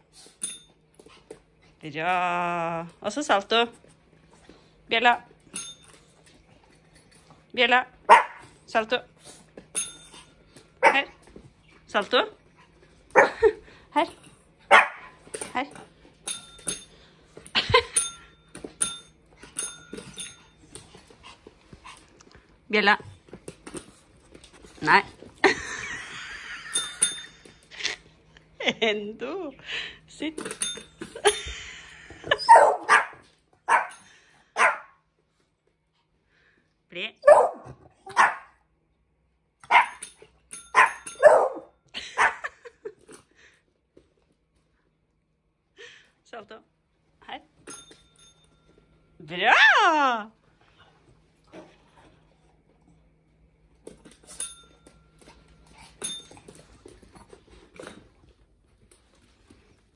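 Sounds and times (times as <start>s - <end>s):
dog barking: 8.1s - 8.4s, 14.7s - 15.1s, 32.5s - 33.9s, 34.6s - 35.0s, 37.2s - 38.6s, 39.7s - 40.0s, 40.8s - 42.4s
dog yipping: 32.4s - 33.9s, 37.2s - 38.5s, 40.8s - 42.4s
push-button bell ringing: 47.7s - 48.8s.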